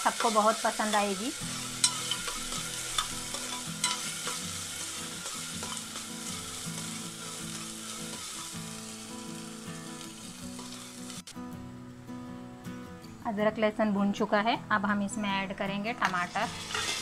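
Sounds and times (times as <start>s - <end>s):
onion and paste sizzling in oil: 0.0s - 11.2s, 15.7s - 17.0s.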